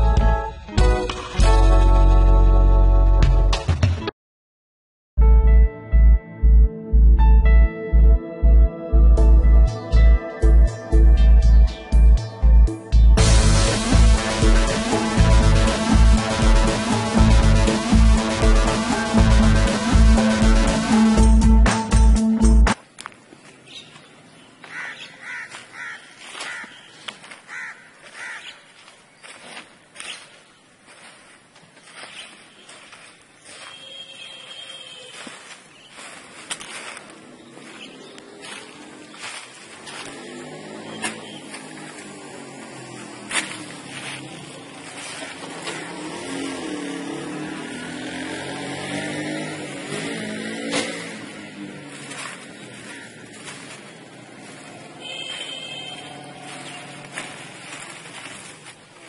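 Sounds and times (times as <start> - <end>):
crow cawing: 24.6 - 28.7, 52.8 - 53.3
plastic bag and leaves rustling: 43.4 - 45.9, 51.6 - 55.1, 56.1 - 59.0.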